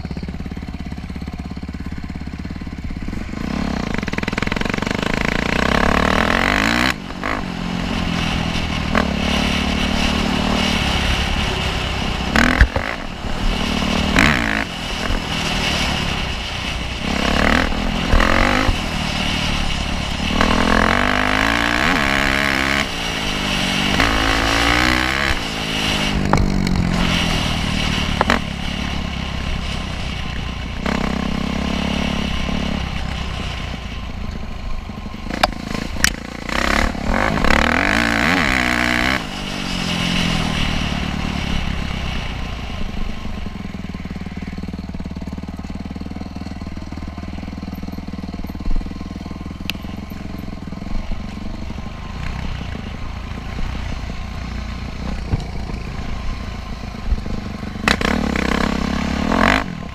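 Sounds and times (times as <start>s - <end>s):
dirt bike engine revving: 0.0s - 33.8s, 35.2s - 42.3s, 50.2s - 59.9s.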